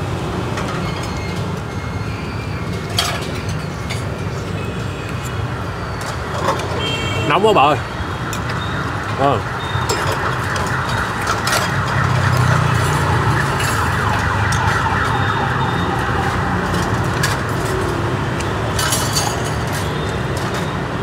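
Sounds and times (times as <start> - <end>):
street traffic: 0.0 - 21.0
utensils clinking: 2.7 - 4.5, 16.7 - 20.7.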